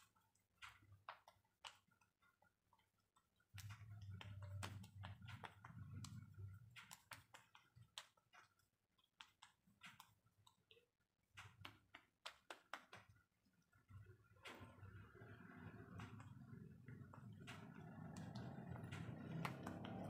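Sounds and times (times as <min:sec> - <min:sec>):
hands patting skin: 0:00.0 - 0:10.7, 0:11.4 - 0:13.2.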